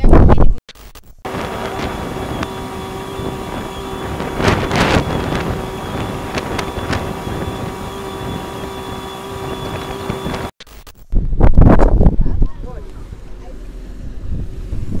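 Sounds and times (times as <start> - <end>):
wind on microphone: 1.3 - 10.5, 11.2 - 12.8, 14.0 - 15.0
boat engine humming: 1.3 - 10.6, 12.6 - 14.9.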